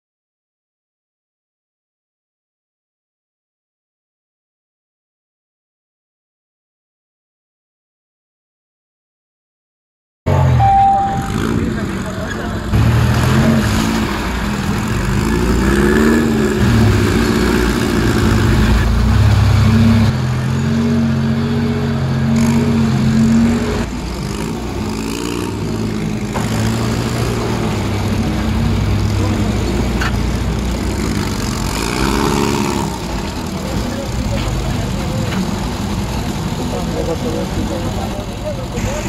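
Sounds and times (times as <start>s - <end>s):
off-road vehicle engines revving: 10.3s - 39.0s.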